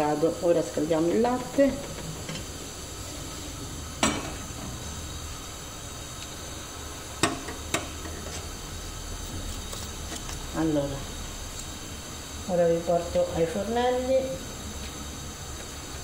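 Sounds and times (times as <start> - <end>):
steady hiss: 0.0 - 16.0.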